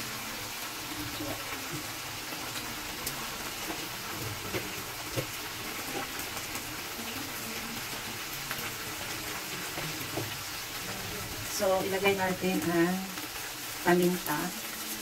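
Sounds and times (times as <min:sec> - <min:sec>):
chicken sizzling in oil: 0:00.0 - 0:15.0.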